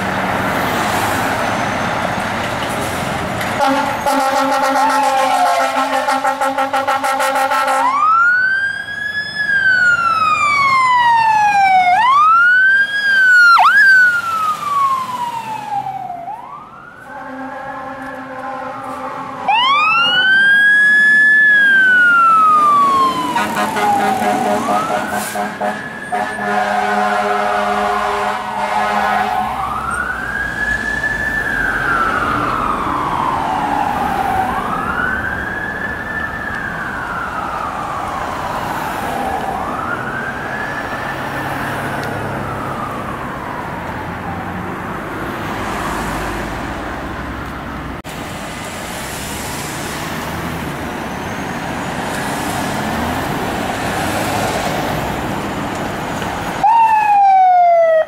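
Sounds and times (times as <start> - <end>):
traffic noise: 0.0 - 58.0
fire engine air horn: 3.6 - 8.2, 16.8 - 20.3, 23.0 - 29.8
siren wailing: 3.6 - 46.4, 56.6 - 58.0.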